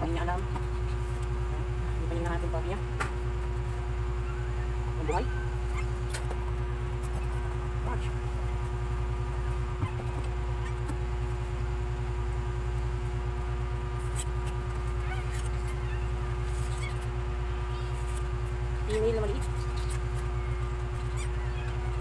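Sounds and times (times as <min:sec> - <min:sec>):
low machine hum: 0:00.0 - 0:22.0
constant high tone: 0:04.0 - 0:06.1.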